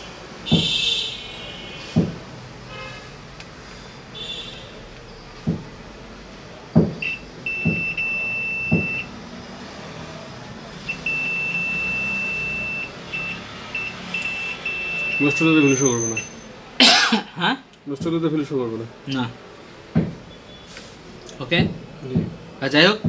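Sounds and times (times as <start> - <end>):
dull knocks: 0.5 - 0.8, 2.0 - 2.2, 5.4 - 5.8, 6.8 - 7.9, 19.9 - 20.3, 21.5 - 22.5
multimeter continuity beeps: 6.9 - 9.1, 10.8 - 16.4.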